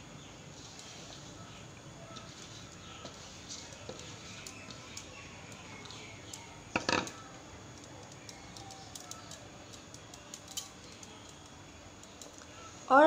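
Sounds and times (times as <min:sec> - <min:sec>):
hands patting shredded potato: 0:00.6 - 0:06.4.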